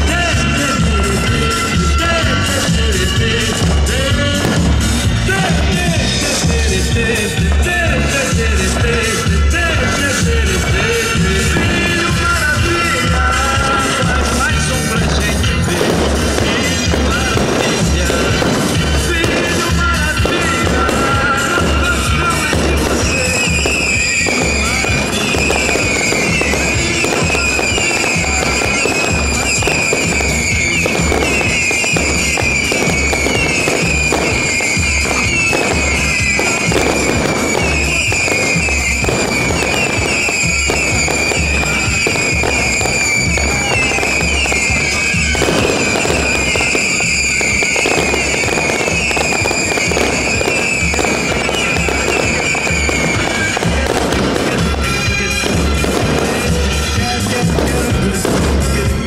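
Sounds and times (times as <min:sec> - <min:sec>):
fireworks bangs and crackling: 0:00.0 - 0:59.0
loud music with low beat: 0:00.0 - 0:59.0.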